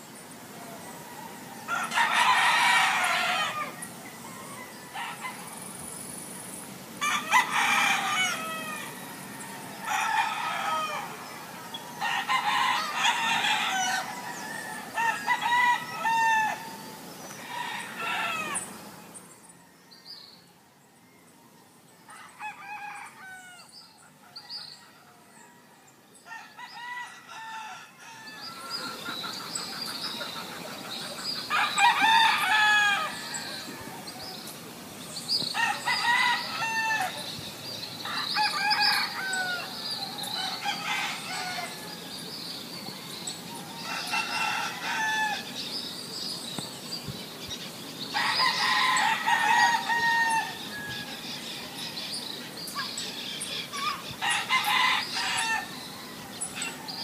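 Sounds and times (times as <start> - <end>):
steady background hiss: 0.0 - 57.0
rooster crowing: 0.7 - 5.7, 7.0 - 18.7, 22.1 - 23.7, 24.4 - 28.9, 31.5 - 34.2, 35.6 - 37.2, 38.0 - 42.3, 43.6 - 45.5, 48.1 - 51.2, 54.2 - 57.0
small bird calls: 28.0 - 57.0.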